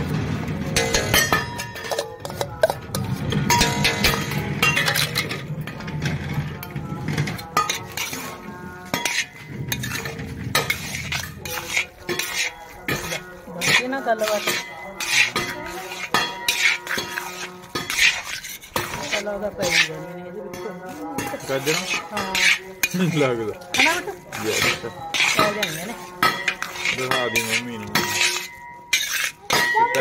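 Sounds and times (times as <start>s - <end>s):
metal spatula scraping metal pan: 0.0s - 30.0s.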